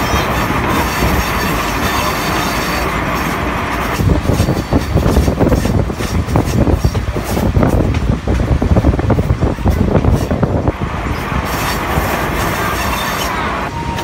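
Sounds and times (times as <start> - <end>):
train wheels rumbling on track: 0.0 - 14.0
faint wheel squeal: 11.5 - 14.0.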